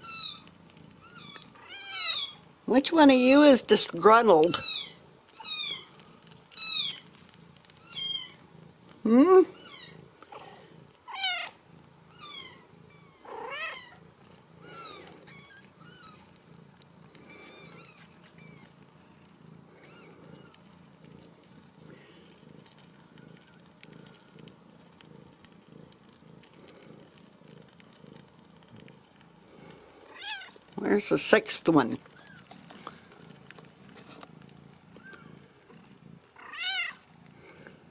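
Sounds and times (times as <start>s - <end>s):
cat purring: 0.0s - 37.9s
kittens mewing: 9.0s - 16.3s.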